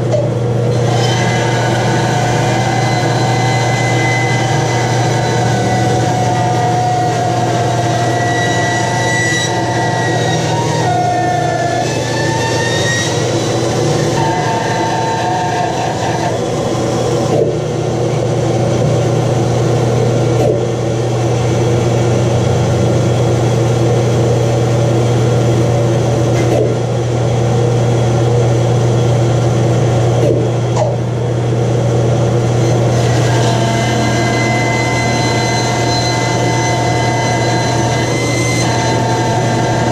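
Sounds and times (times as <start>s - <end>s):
bandsaw cutting wood: 0.7s - 17.5s, 32.6s - 39.9s.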